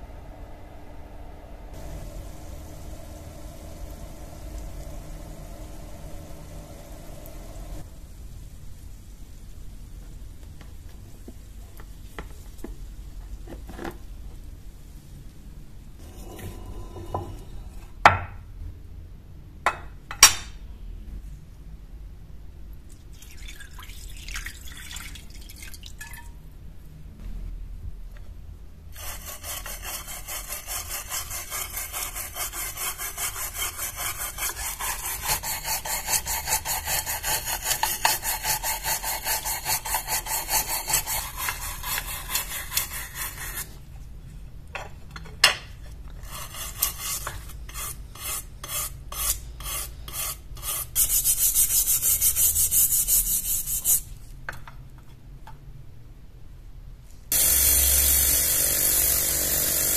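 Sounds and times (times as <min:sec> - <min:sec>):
brush scrubbing knife under water: 0:29.0 - 0:43.8, 0:46.2 - 0:52.4.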